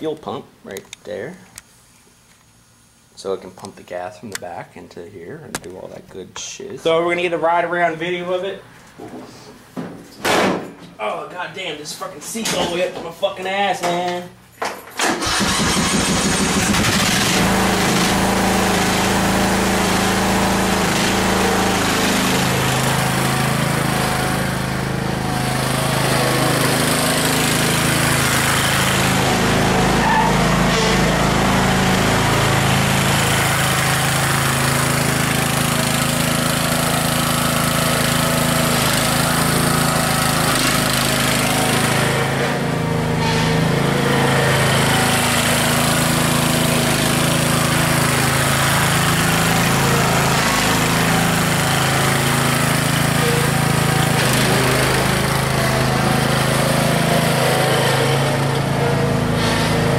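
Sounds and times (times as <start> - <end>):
lawn tractor engine running: 15.0 - 59.9.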